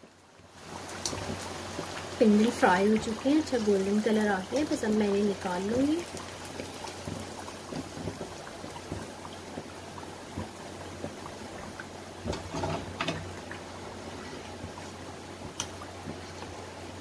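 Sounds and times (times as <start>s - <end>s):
oil sizzling and bubbling: 0.0s - 17.0s
skimmer clicks and knocks: 12.3s - 13.3s.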